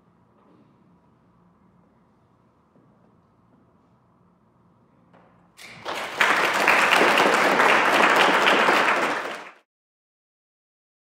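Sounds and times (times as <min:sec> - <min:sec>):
audience applauding: 0:05.6 - 0:09.6.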